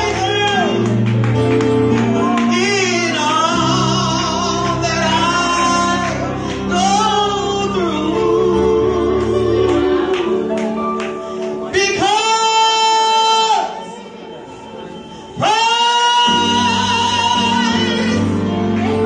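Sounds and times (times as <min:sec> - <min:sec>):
instrumental accompaniment: 0:00.0 - 0:19.0
woman singing gospel song: 0:15.4 - 0:19.0.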